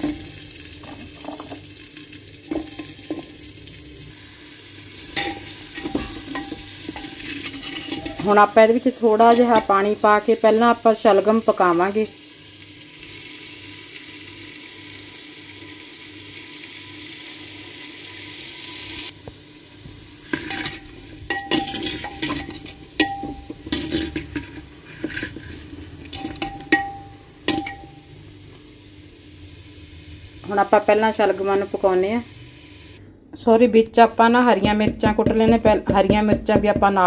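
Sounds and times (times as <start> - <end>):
food sizzling in hot oil: 0.0 - 33.0
ladle scraping and clanking pot: 5.1 - 8.4, 20.2 - 28.0.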